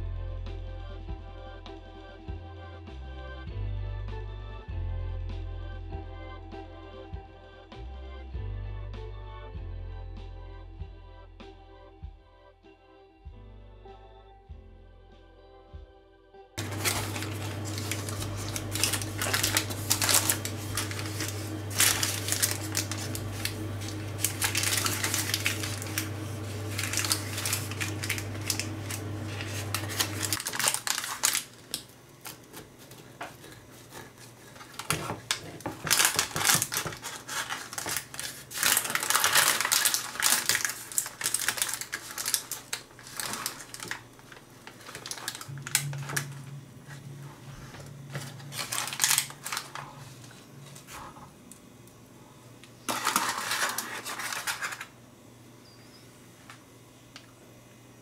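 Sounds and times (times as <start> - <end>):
steady low hum: 16.6 - 36.7, 40.9 - 58.0
parchment paper crinkling: 16.6 - 51.3, 52.9 - 54.9
knife crunching through pie crust: 32.3 - 40.8.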